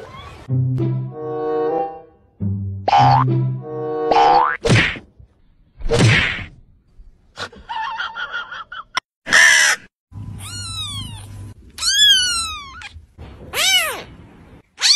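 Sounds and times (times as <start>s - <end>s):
kitten mewing: 10.4s - 14.1s.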